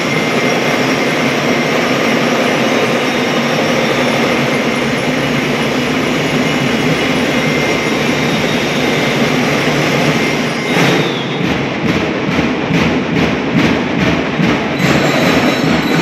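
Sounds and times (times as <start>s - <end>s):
drums and cymbals rolling: 0.0s - 16.0s
sharp drum hit: 10.7s - 16.0s.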